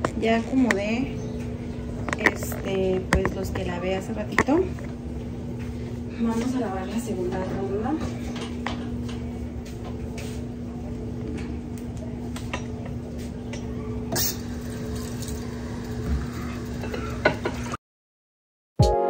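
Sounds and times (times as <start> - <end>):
steady low hum: 0.0 - 17.8
dishes clattering: 16.3 - 17.8
dishes and pans clinking: 16.8 - 17.8.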